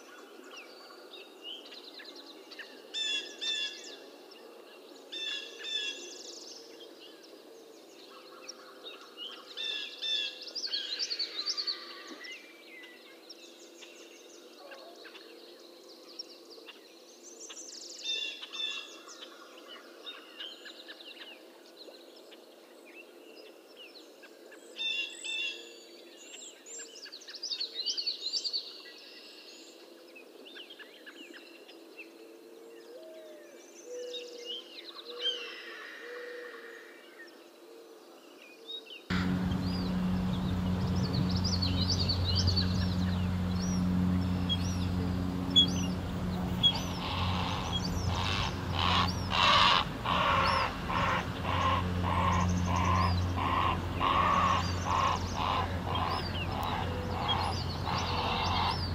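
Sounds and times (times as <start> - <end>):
songbirds chirping: 38.5 - 58.9
low background drone: 39.1 - 58.9.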